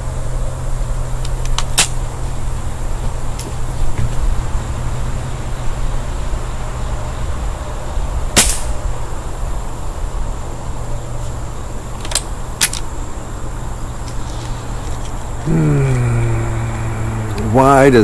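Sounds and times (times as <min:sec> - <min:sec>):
steady low hum: 0:00.0 - 0:18.0
air rifle shot: 0:08.4 - 0:08.8.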